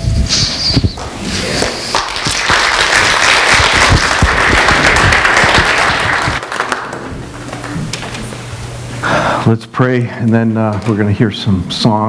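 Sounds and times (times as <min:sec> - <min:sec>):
congregation applauding: 0:01.5 - 0:08.4.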